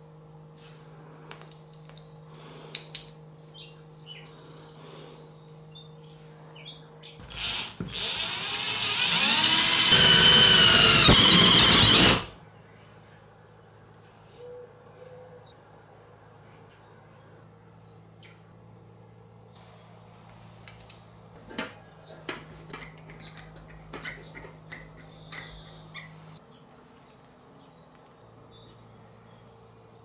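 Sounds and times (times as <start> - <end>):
cordless drill whining: 7.2 - 12.4.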